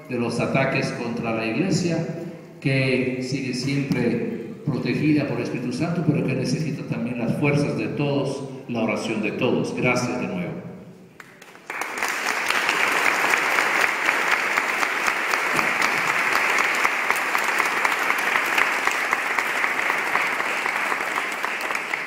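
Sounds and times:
congregation clapping: 0:11.2 - 0:22.0.

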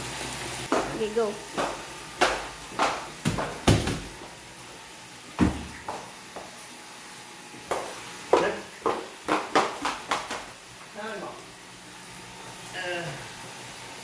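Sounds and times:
boxes knocking on wooden stairs: 0:01.6 - 0:04.2, 0:05.4 - 0:06.1, 0:07.7 - 0:10.5
footsteps on wooden stairs: 0:05.4 - 0:06.6, 0:07.7 - 0:10.5.

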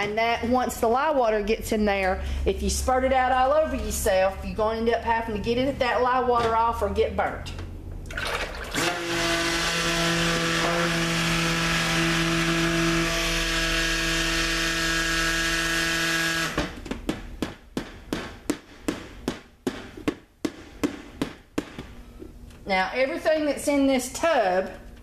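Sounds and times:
immersion blender running: 0:08.4 - 0:16.7.

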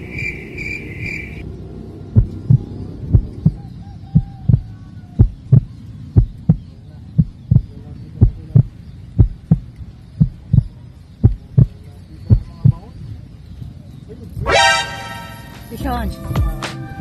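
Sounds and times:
heartbeat double thump: 0:02.2 - 0:12.9.

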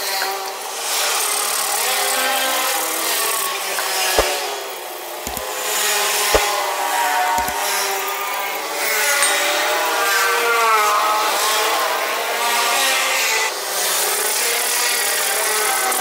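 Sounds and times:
sharp knocks: 0:05.3 - 0:05.5, 0:07.4 - 0:07.6.

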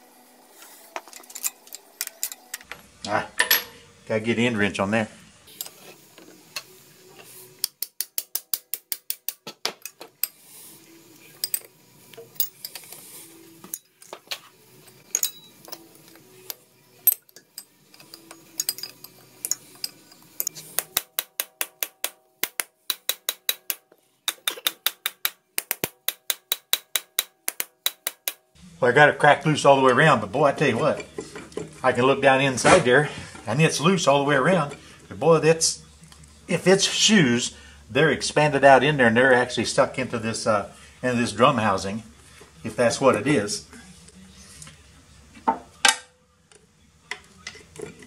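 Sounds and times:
wrench clicking on bolts: 0:15.1 - 0:28.4.

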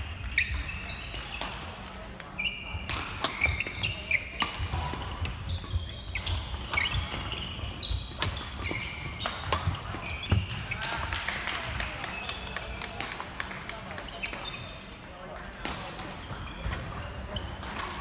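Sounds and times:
shoes squeaking on floor: 0:00.3 - 0:01.4, 0:02.4 - 0:10.9, 0:14.0 - 0:15.6, 0:16.2 - 0:17.5
racket hitting shuttlecock: 0:02.8 - 0:07.5.

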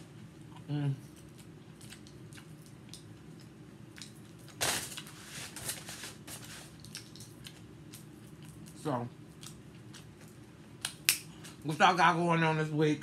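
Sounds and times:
chewing: 0:00.5 - 0:05.1, 0:06.5 - 0:11.6.

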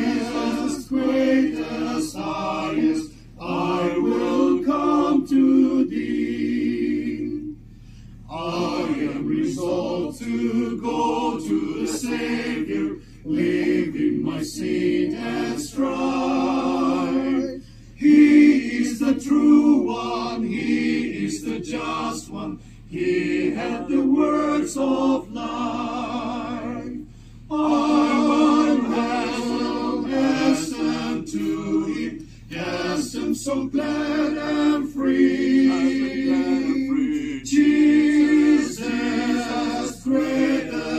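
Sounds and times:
choir singing a cappella: 0:00.0 - 0:40.9.

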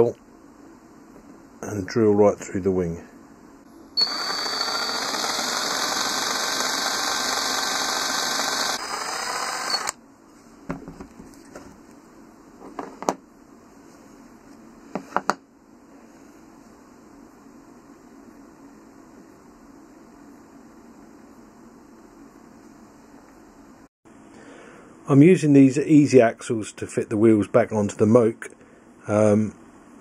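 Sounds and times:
power drill boring metal: 0:04.0 - 0:10.0.

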